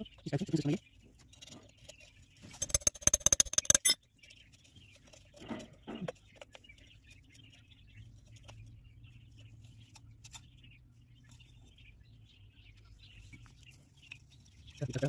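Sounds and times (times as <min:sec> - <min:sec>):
metallic clicking and rattling: 0:01.3 - 0:04.0.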